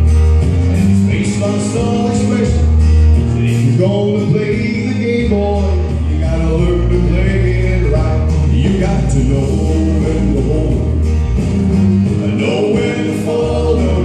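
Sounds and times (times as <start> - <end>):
backing track with guitar: 0.0 - 14.0
man singing country song: 0.6 - 14.0.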